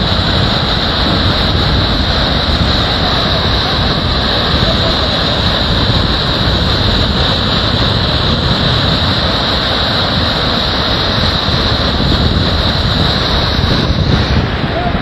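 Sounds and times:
floodwater rushing: 0.0s - 15.0s.

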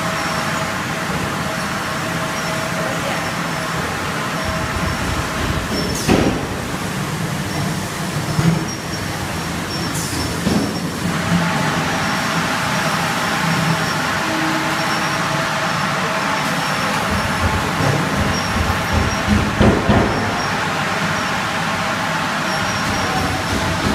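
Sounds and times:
filling machinery running: 0.0s - 23.9s
sharp mechanical knocks: 17.1s - 20.4s.

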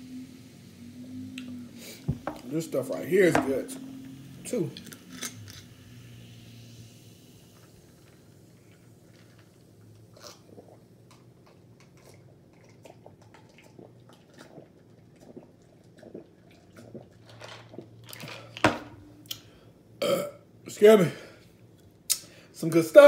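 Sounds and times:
man sipping and swallowing: 10.2s - 18.6s.

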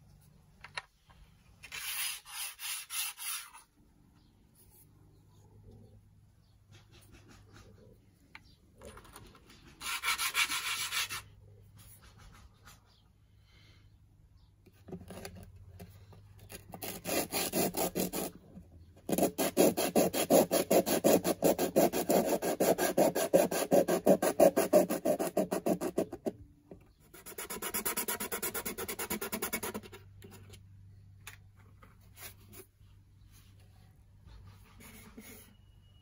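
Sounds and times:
sandpaper rubbing on wood: 9.8s - 11.2s, 19.2s - 25.9s.

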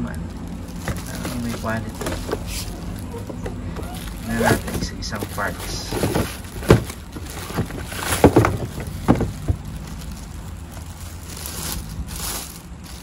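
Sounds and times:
low background rumble: 0.0s - 13.0s
plastic wrapping crinkling: 0.0s - 13.0s
plastic parts knocking: 0.8s - 10.9s.

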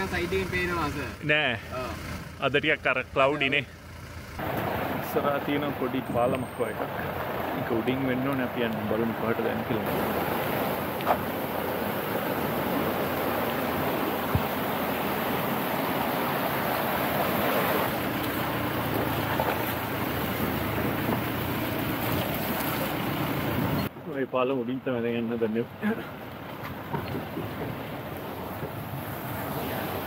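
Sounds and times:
stream splashing over rocks: 4.4s - 23.8s.

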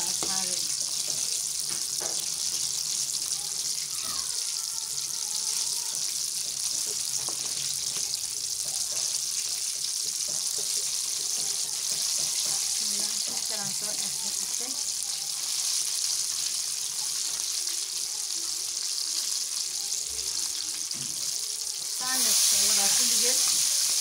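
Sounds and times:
chicken deep-frying in oil: 0.0s - 24.0s.

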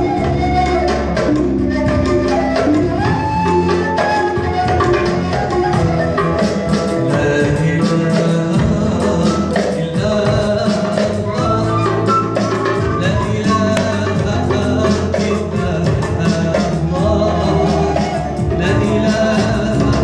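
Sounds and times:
end-blown flute: 0.0s - 8.0s, 10.7s - 15.2s, 16.5s - 20.0s
keyboard: 0.0s - 20.0s
percussion beat: 0.0s - 20.0s
man singing: 4.6s - 20.0s.

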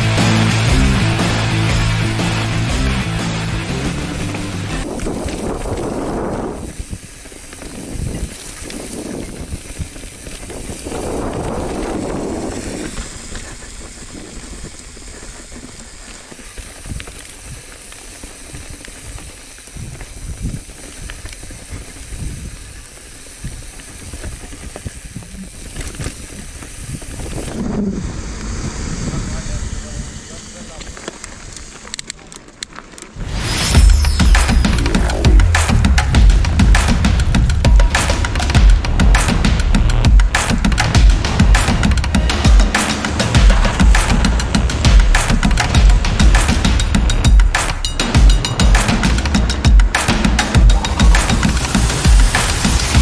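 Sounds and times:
bike rattling over rocks: 4.8s - 27.6s, 30.6s - 33.2s
tyres hissing over wet ground: 8.3s - 53.0s.

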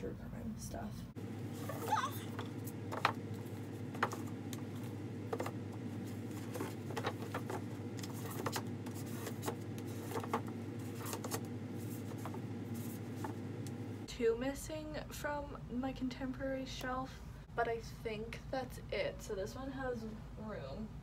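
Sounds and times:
steady low hum: 0.0s - 21.0s
books knocking on a shelf: 2.3s - 4.3s, 5.3s - 10.5s.

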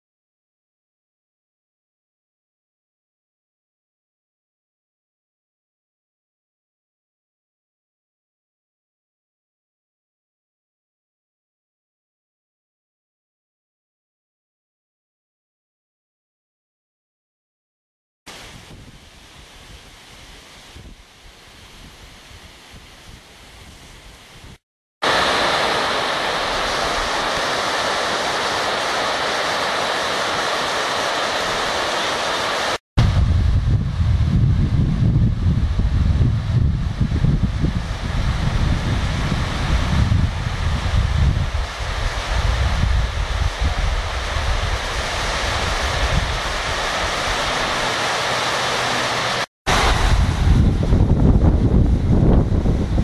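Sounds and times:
water rushing over spillway: 25.0s - 33.9s, 34.6s - 53.0s
low rumble: 33.0s - 37.2s, 49.7s - 52.9s
wind buffeting microphone: 33.0s - 47.9s, 49.7s - 53.0s.

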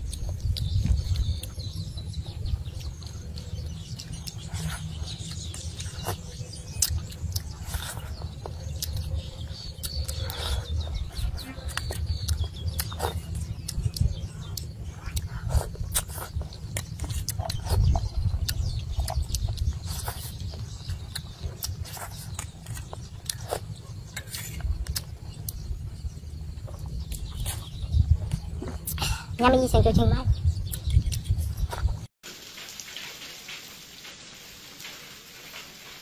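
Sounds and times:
wet chewing and lip smacking: 2.8s - 25.6s.

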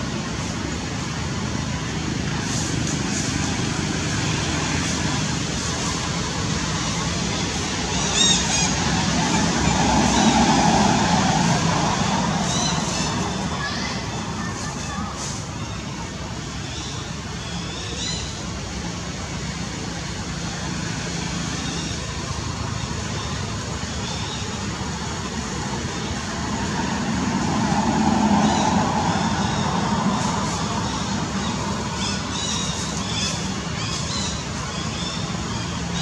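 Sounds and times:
outdoor background noise: 0.0s - 36.0s.

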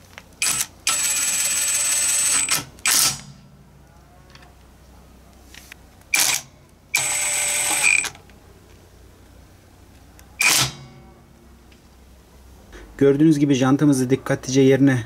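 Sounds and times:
impact wrench bursts: 0.4s - 3.4s, 6.1s - 8.2s, 10.4s - 11.0s.

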